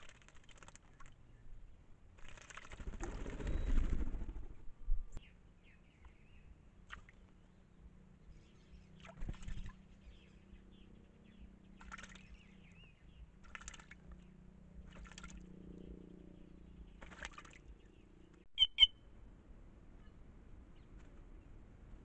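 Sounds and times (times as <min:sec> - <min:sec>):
bird splashing and fluttering: 0:00.0 - 0:04.7, 0:06.8 - 0:07.4, 0:09.0 - 0:10.2, 0:11.7 - 0:12.5, 0:13.3 - 0:15.8, 0:16.9 - 0:17.9, 0:20.8 - 0:21.4
short sharp bird calls: 0:18.5 - 0:19.1.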